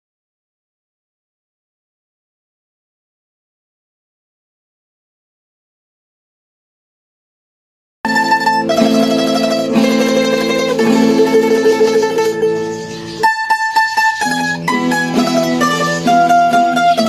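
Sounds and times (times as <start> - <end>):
plucked string music: 8.1 - 17.0.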